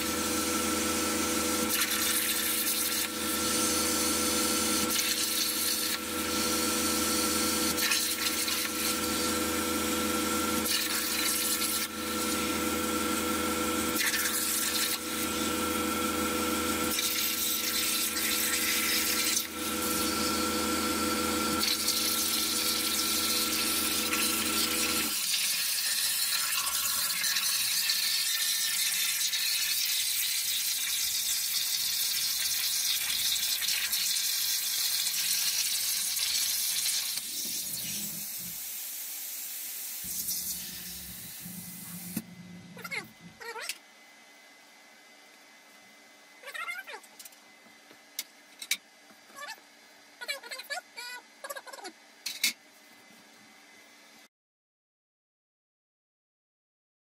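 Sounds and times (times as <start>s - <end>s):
plasma cutter hissing: 1.6s - 9.3s, 10.6s - 12.5s, 13.8s - 15.4s, 16.9s - 20.4s, 21.6s - 42.2s.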